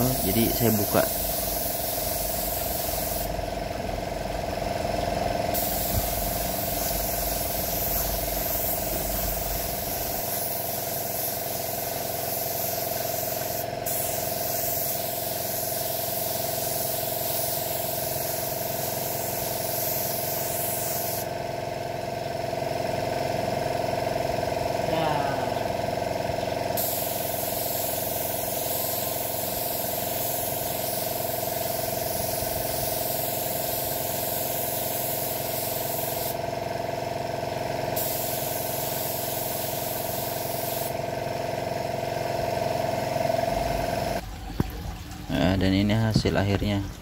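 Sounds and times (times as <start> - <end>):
paint spray gun hissing: 0.0 - 3.6, 5.5 - 21.4, 26.8 - 36.5, 37.9 - 41.2
steady hum: 0.0 - 21.4, 24.3 - 36.5.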